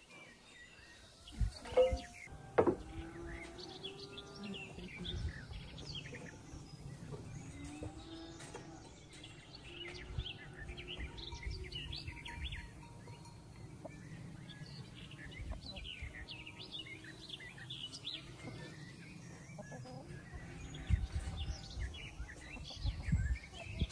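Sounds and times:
small birds chirping: 0:00.0 - 0:23.9
sharp knocks: 0:01.7 - 0:02.9.

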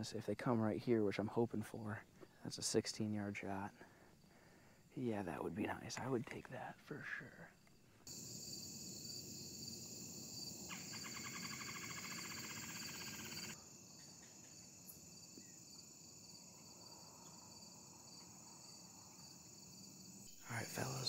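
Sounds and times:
crickets chirring: 0:02.2 - 0:21.0
low pulsing insect trill: 0:07.4 - 0:21.0.

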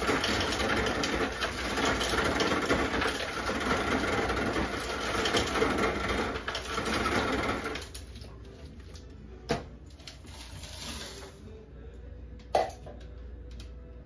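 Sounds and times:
ice dispenser grinding and rattling: 0:00.0 - 0:08.4, 0:10.0 - 0:11.4.

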